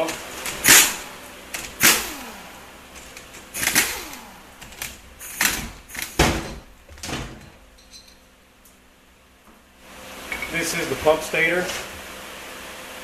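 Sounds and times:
air impact wrench bursts: 0:00.0 - 0:06.6.

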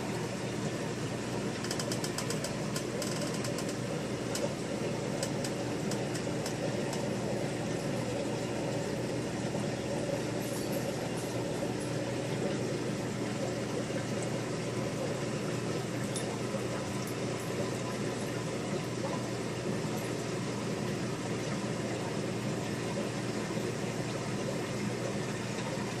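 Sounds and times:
aquarium air pump humming: 0:00.0 - 0:26.0
bubbling filter: 0:00.0 - 0:26.0.

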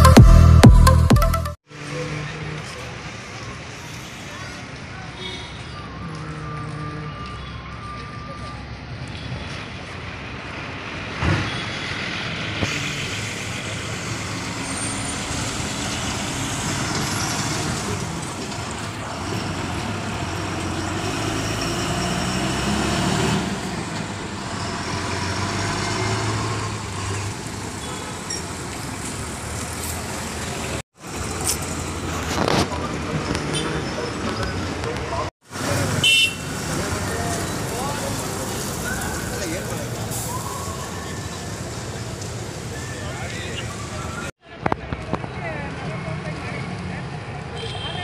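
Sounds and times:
diesel bus engines droning: 0:09.5 - 0:44.3.

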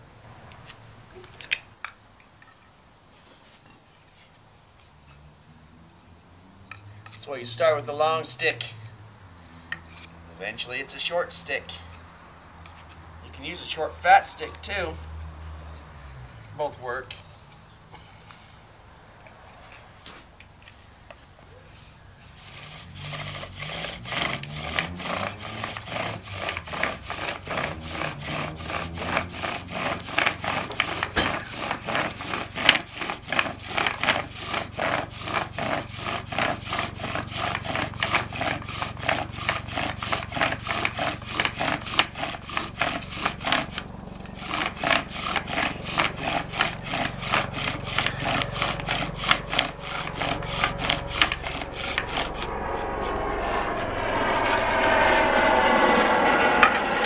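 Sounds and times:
bow drill wood rasping: 0:22.4 - 0:55.2.

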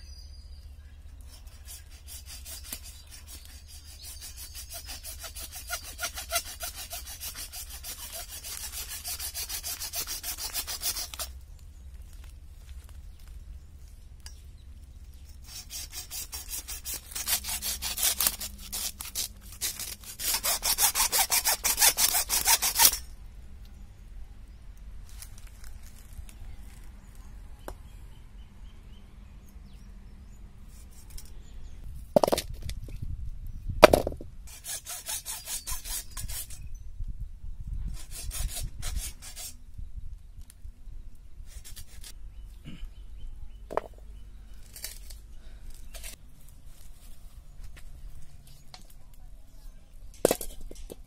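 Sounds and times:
hacksaw cutting bone: 0:01.6 - 0:11.3, 0:15.4 - 0:23.0, 0:33.9 - 0:36.6
sharp knocks: 0:33.8 - 0:34.3.

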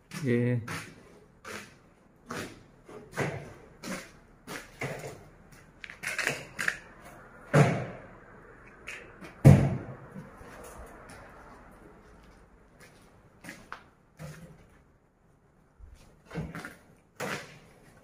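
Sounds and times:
knocks and thuds: 0:07.5 - 0:08.0, 0:09.3 - 0:10.2.

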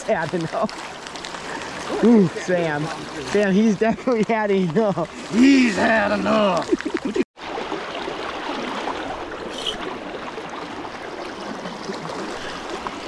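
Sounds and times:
river current rushing: 0:05.1 - 0:06.8.

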